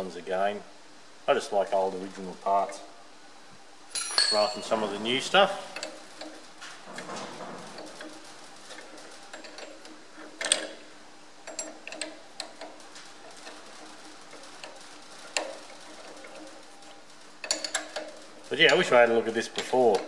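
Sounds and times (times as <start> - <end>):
faint steady hum: 0.0 - 20.0
spanner clicking on nut: 5.8 - 6.4, 9.3 - 10.8, 11.4 - 12.8, 17.4 - 18.9.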